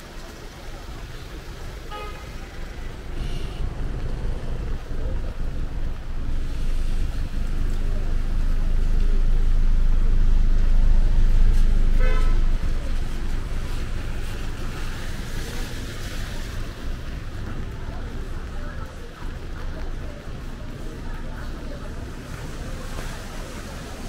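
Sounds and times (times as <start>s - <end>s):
tyres hissing on wet street: 0.0s - 24.0s
vehicle engine rumbling: 0.0s - 24.0s
car horn toot: 1.9s - 2.3s, 12.0s - 12.6s.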